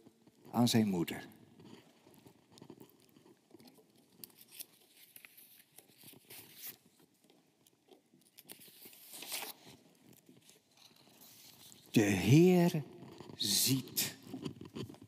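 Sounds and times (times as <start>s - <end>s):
paper rustling and crinkling: 3.5s - 12.0s.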